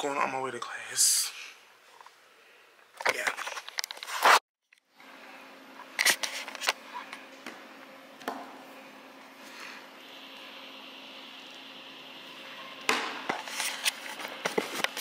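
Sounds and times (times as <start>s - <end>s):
faint steady hum: 4.8s - 14.9s.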